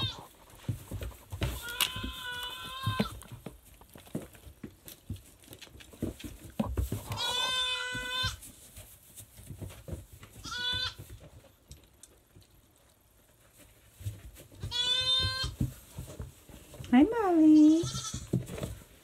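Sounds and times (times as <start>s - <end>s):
goat bleating: 0.0s - 0.3s, 1.6s - 3.1s, 7.1s - 8.4s, 10.4s - 11.0s, 14.7s - 15.6s, 17.6s - 18.3s
faint knocks and rustles: 0.0s - 19.0s.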